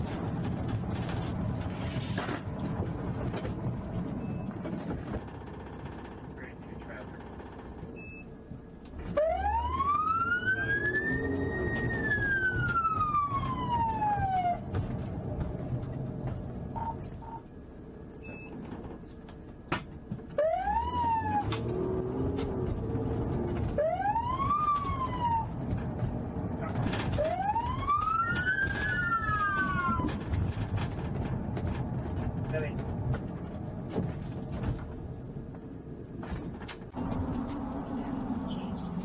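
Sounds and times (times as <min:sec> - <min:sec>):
low road rumble: 0:00.0 - 0:39.0
police siren wailing: 0:09.0 - 0:15.2, 0:20.4 - 0:30.4.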